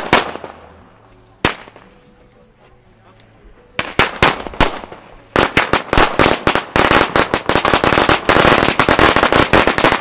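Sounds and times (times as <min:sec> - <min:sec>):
firecrackers cracking: 0:00.0 - 0:00.8, 0:01.4 - 0:02.0, 0:03.7 - 0:10.0.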